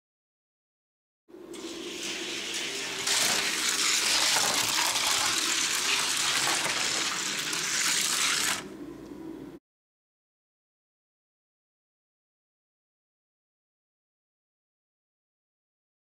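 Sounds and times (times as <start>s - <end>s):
toy cars rolling on track: 1.6s - 8.7s.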